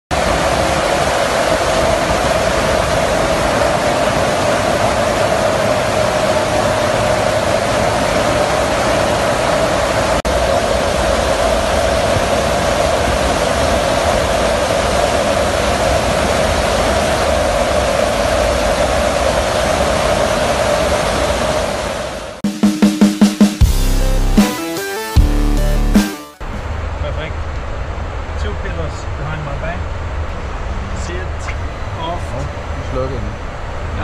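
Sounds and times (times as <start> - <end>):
wind rushing: 0.1 - 22.4
aircraft engine drone: 0.1 - 34.0.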